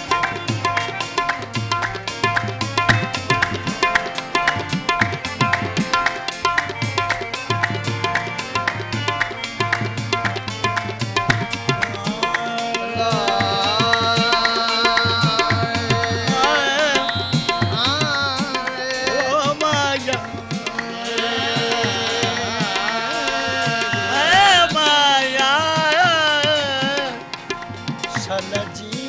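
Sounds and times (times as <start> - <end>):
held melody line: 0.0 - 29.0
tabla drumming: 0.0 - 29.0
wordless wavering vocal melody: 11.9 - 29.0.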